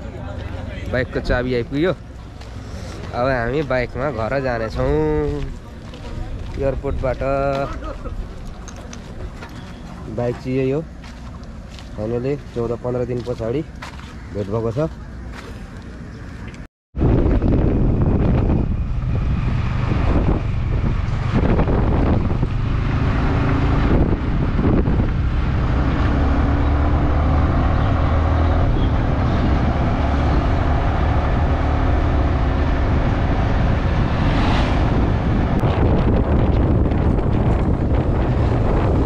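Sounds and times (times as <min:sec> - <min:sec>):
wind buffeting on microphone: 0:17.0 - 0:39.0.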